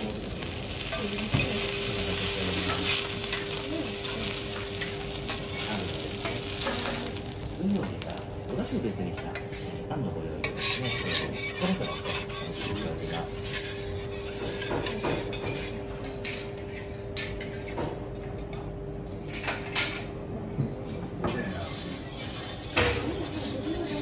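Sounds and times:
metal spatula scraping griddle: 0.6 - 8.0, 10.4 - 15.8, 21.3 - 24.0.

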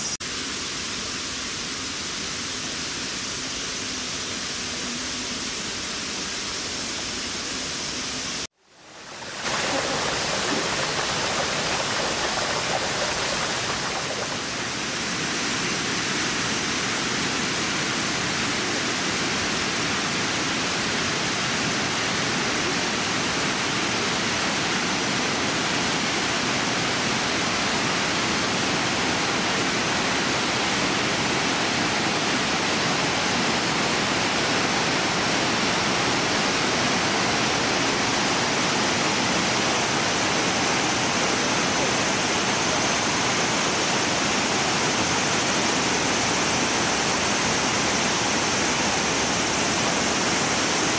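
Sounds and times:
rush of falling water: 0.1 - 50.9
streams running over rock: 8.9 - 14.8.

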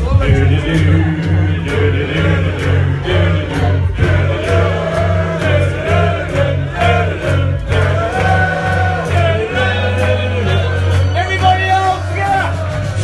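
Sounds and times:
man singing into microphone: 0.0 - 4.3
backing music with heavy bass beat: 0.0 - 13.0.

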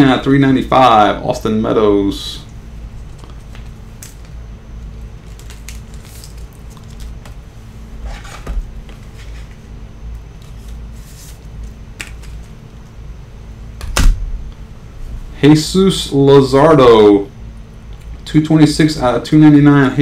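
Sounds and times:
low hum: 0.0 - 20.0
cards and packaging rustling: 3.0 - 7.4, 8.1 - 9.6, 10.3 - 12.6.

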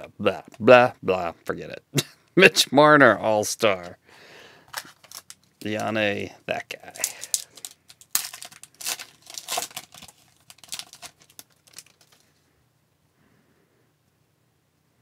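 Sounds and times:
foil wrapper tearing and crinkling: 4.7 - 5.9, 6.9 - 12.3.

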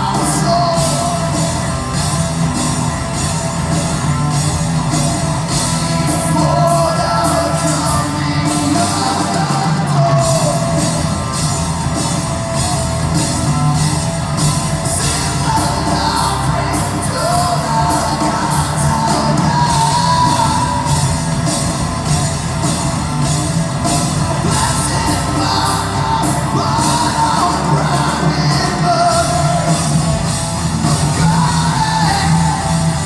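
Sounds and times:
man singing: 0.0 - 1.6, 5.8 - 11.1, 14.8 - 21.1, 24.3 - 30.0, 30.8 - 33.0
drums with cymbal hits: 0.0 - 33.0
electric guitars and bass: 0.0 - 33.0.

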